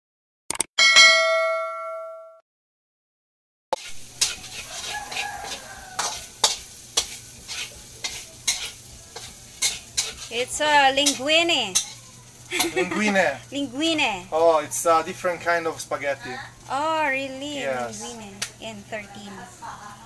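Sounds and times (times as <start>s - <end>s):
bell-like ding: 0.8s - 2.4s
food sizzling in frying pan: 3.8s - 20.0s
utensil clinking against pan: 4.2s - 10.3s, 11.0s - 13.1s.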